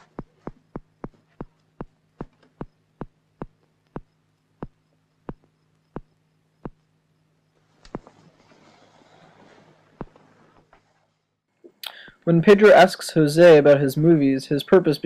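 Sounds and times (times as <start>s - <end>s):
heartbeat thuds: 0.0s - 6.9s, 7.9s - 8.2s
low steady hum: 0.0s - 15.0s.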